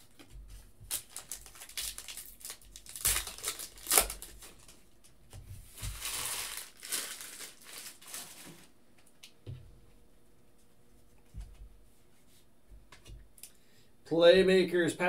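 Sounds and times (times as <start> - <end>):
foil wrapper tearing and crinkling: 0.9 - 4.8, 5.8 - 8.7.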